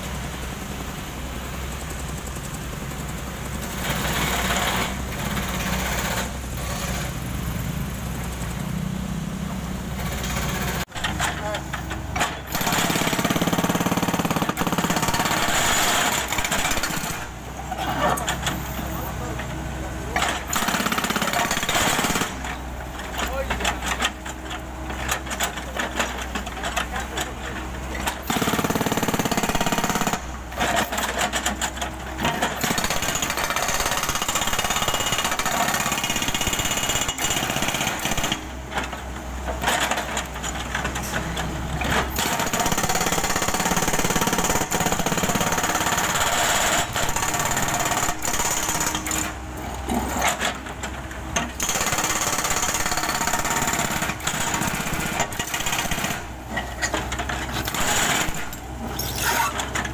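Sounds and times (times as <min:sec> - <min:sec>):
hydraulic breaker hammering asphalt: 0:10.2 - 0:17.4, 0:20.1 - 0:24.2, 0:27.9 - 0:38.9, 0:41.8 - 0:50.7, 0:51.3 - 0:59.6.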